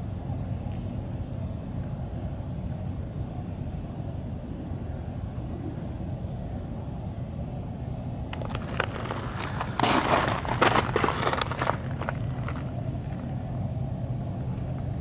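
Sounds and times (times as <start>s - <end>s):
steady low rumble: 0.0s - 15.0s
ice crunching and crackling: 8.4s - 13.3s.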